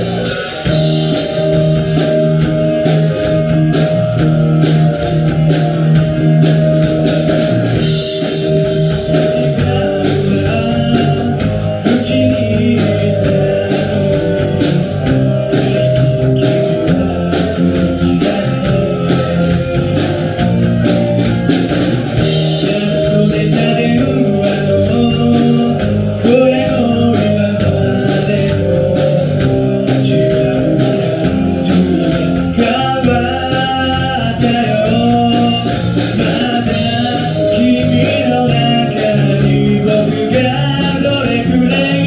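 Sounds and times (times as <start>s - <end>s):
backing music: 0.0s - 42.0s
electric guitar: 0.0s - 42.0s
man singing into a microphone: 7.8s - 20.3s, 22.2s - 42.0s.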